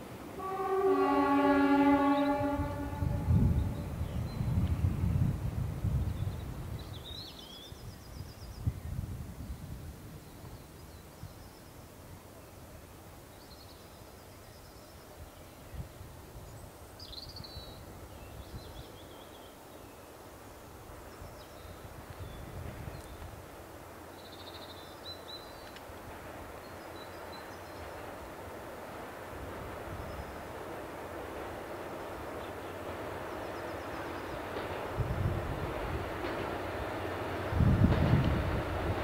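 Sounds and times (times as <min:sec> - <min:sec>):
rail machine rumble: 0:00.0 - 0:17.0, 0:17.6 - 0:39.0
steady outdoor hiss: 0:00.0 - 0:39.0
songbirds calling: 0:13.3 - 0:29.0, 0:29.6 - 0:37.6.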